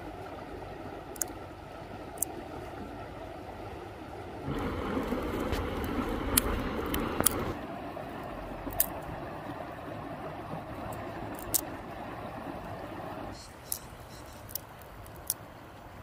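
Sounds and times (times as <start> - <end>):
flowing river rushing: 0.0 - 16.0
campfire crackling and popping: 4.4 - 9.3, 13.1 - 15.5.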